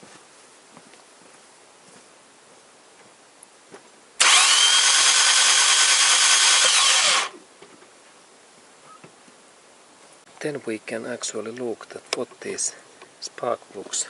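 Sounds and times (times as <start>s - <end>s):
starter motor cranking engine: 4.2s - 7.4s.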